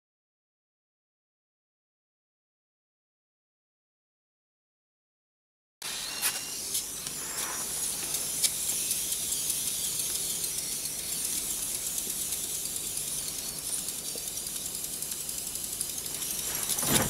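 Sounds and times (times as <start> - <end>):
steam hissing from nozzles: 5.8 - 17.0.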